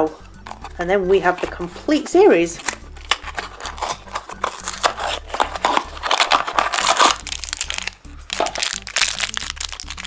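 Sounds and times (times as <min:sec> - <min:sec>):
card and foil crinkling: 0:02.6 - 0:10.0.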